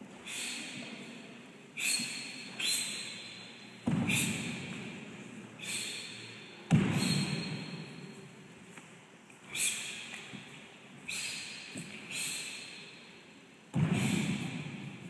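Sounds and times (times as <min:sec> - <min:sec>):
sharp hissing breath exhalations: 0:00.2 - 0:00.8, 0:01.8 - 0:03.2, 0:05.6 - 0:07.3, 0:09.5 - 0:10.1, 0:11.1 - 0:13.1
heavy thud: 0:03.8 - 0:04.7, 0:06.7 - 0:07.7, 0:13.7 - 0:14.9.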